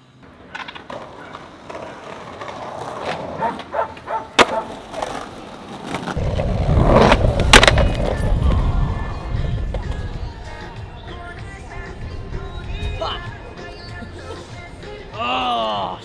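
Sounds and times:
skateboard rolling on pavement: 0.0s - 15.2s
skateboard clacks: 0.2s - 10.8s
loud crack: 6.0s - 8.3s.

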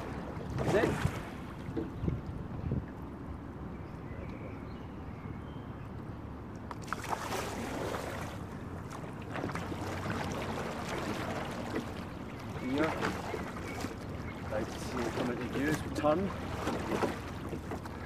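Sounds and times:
oars splashing in water: 0.0s - 2.4s, 6.6s - 18.0s
wind rumble on microphone: 0.0s - 5.4s
water lapping against hull: 0.0s - 18.0s
oars knocking: 10.8s - 18.0s.

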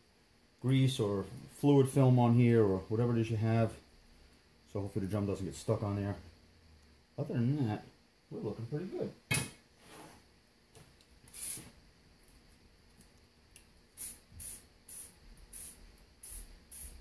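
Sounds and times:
aerosol spray hissing: 11.3s - 11.8s, 13.9s - 17.0s.

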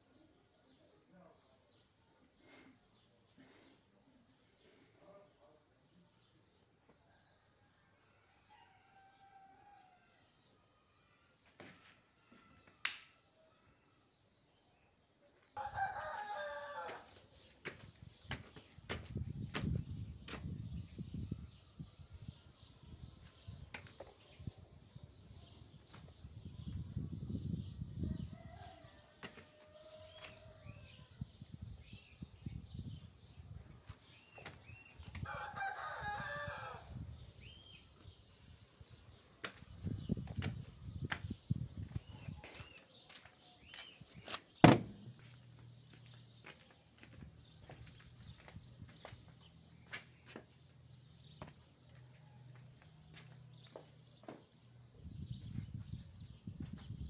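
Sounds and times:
footsteps: 11.5s - 12.6s, 16.8s - 20.5s, 41.9s - 44.5s, 51.4s - 54.5s
rooster crowing: 15.6s - 17.2s, 35.2s - 36.9s
small birds chirping: 16.9s - 35.9s, 36.8s - 57.0s.

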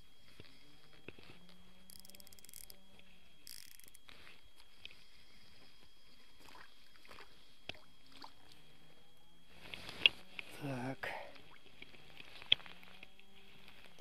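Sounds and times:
faint steady high tone: 0.0s - 14.0s
quiet outdoor ambience: 0.0s - 14.0s
fishing reel ticking: 1.0s - 5.0s.

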